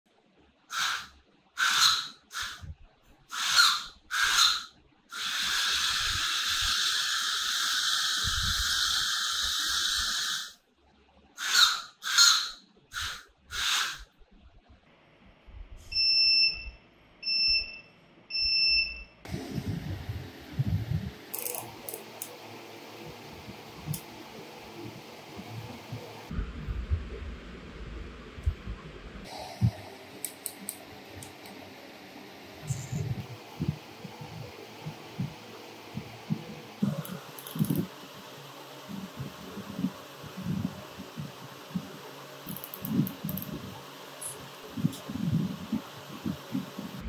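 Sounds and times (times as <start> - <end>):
piezo buzzer beeps: 16.0 - 19.2.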